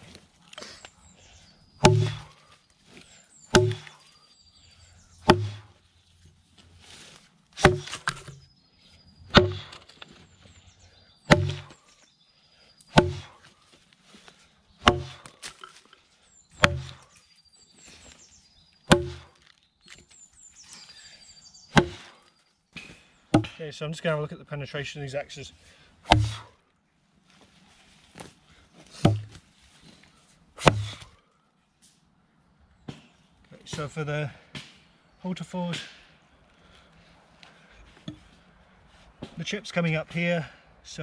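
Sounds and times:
axe chopping into log: 0:01.8 - 0:02.4, 0:03.5 - 0:04.0, 0:05.2 - 0:05.7, 0:07.6 - 0:08.4, 0:09.3 - 0:09.9, 0:11.3 - 0:11.8, 0:12.9 - 0:13.4, 0:14.8 - 0:15.6, 0:16.6 - 0:17.1, 0:18.9 - 0:19.4, 0:21.7 - 0:22.1, 0:22.8 - 0:23.6, 0:26.1 - 0:26.5, 0:29.0 - 0:29.4, 0:30.6 - 0:31.1.

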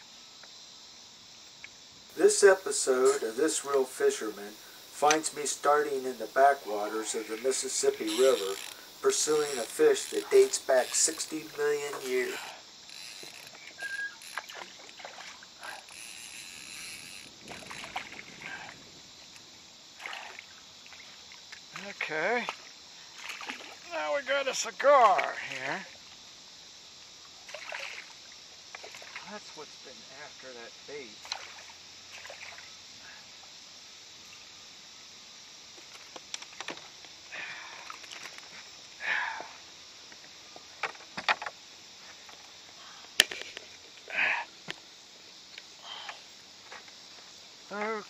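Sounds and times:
faint hiss: 0:00.0 - 0:48.0
fish splashing in water: 0:14.3 - 0:16.0, 0:17.4 - 0:18.8, 0:20.0 - 0:21.4, 0:23.2 - 0:23.8, 0:27.5 - 0:28.2
fish thrashing water splashing: 0:14.4 - 0:15.9, 0:17.4 - 0:18.8.

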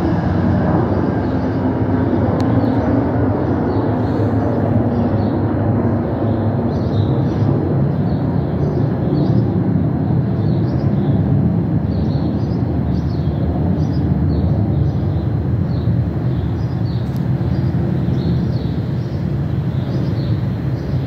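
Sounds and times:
train passing with low rumble: 0:00.0 - 0:21.0
bird chirping: 0:11.9 - 0:21.0.

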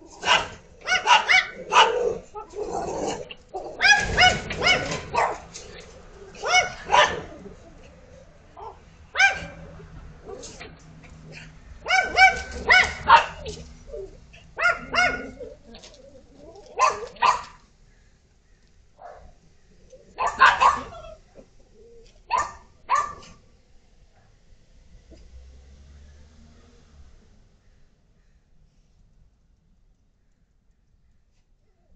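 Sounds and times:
small dogs barking: 0:00.0 - 0:17.7, 0:19.0 - 0:23.5.

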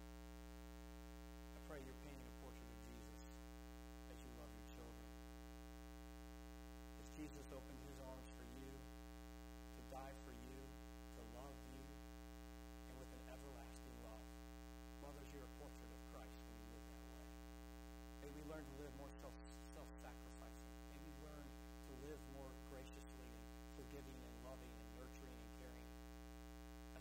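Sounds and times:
electrical mains hum: 0:00.0 - 0:27.0
man talking faintly: 0:01.6 - 0:03.4, 0:04.1 - 0:05.0, 0:07.0 - 0:08.8, 0:09.8 - 0:11.9, 0:12.9 - 0:14.2, 0:15.0 - 0:17.3, 0:18.2 - 0:25.9.

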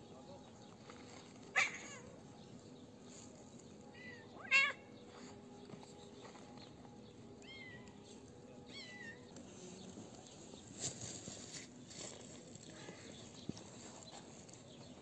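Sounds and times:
cats meowing: 0:01.5 - 0:02.2, 0:03.9 - 0:04.9, 0:07.4 - 0:08.0, 0:08.7 - 0:09.3.

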